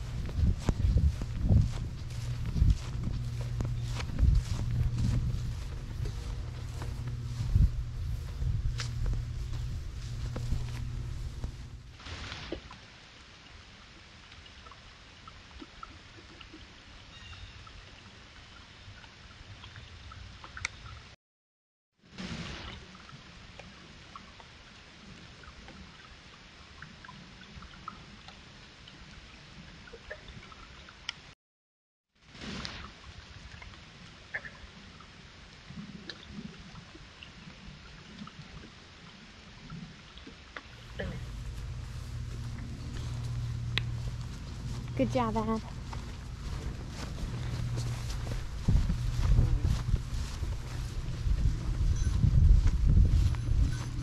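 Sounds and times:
soft low thumps: 0.0s - 11.9s, 40.8s - 54.0s
low hiss and rumble: 0.0s - 12.2s, 40.8s - 54.0s.

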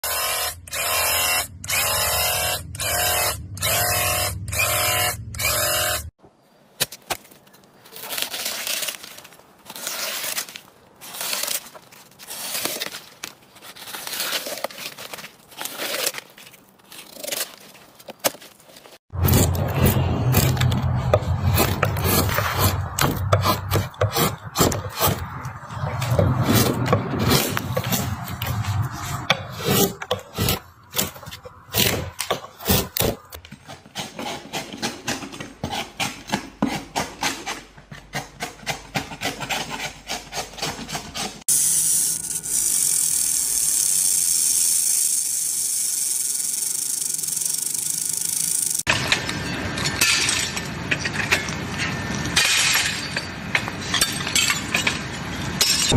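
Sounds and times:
knife scraping dry material: 7.9s - 17.9s, 32.6s - 41.5s.

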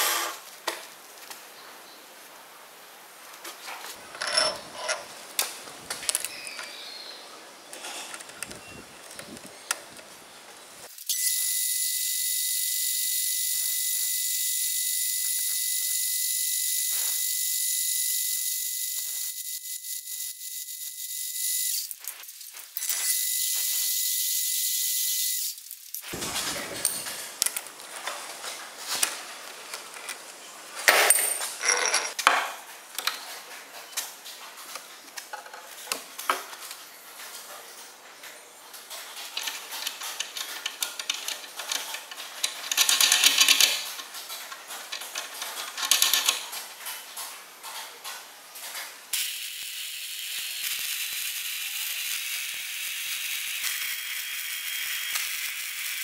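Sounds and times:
metal clinks and knocks: 4.0s - 5.1s, 26.2s - 27.6s, 30.9s - 32.5s.

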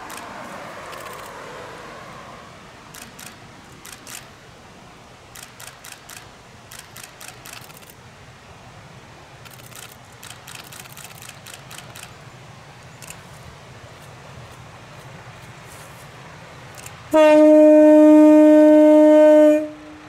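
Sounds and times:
camera shutter clicks: 0.9s - 1.4s, 2.9s - 4.3s, 5.4s - 8.0s, 9.4s - 12.2s.

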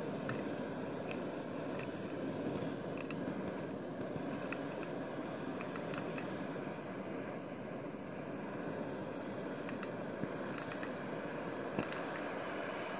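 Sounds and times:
faint light ticks: 9.6s - 11.0s.

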